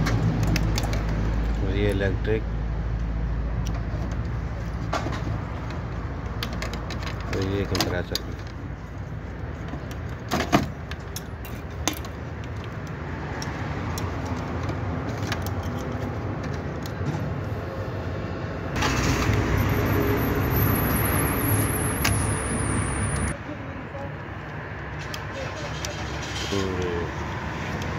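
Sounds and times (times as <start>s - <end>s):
small metallic clicks and rattles: 0.0s - 2.0s, 9.6s - 17.0s
low traffic rumble: 0.0s - 27.9s
passing vehicle with whine: 17.2s - 23.8s.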